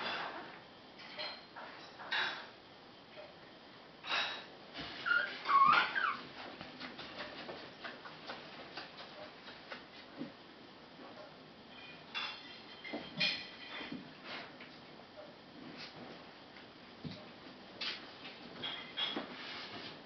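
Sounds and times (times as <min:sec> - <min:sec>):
puppy whimpering and squealing: 0:05.0 - 0:06.3.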